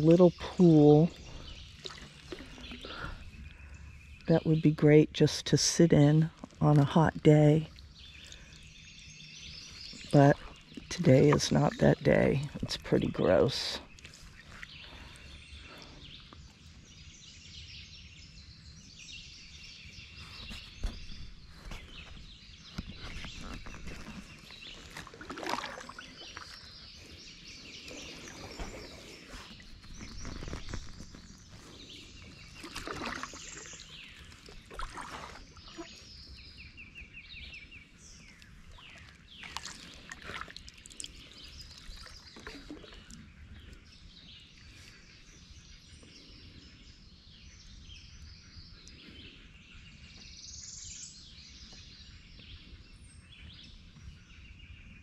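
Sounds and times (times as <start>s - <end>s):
birds singing and calling: 0.0s - 55.0s
paddle splashes: 1.2s - 4.0s, 20.2s - 27.2s, 27.8s - 36.2s, 38.2s - 43.4s.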